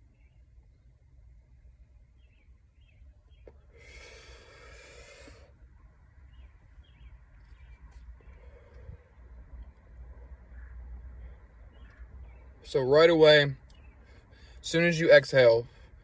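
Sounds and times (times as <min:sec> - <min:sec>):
person exhaling: 0:03.7 - 0:05.6.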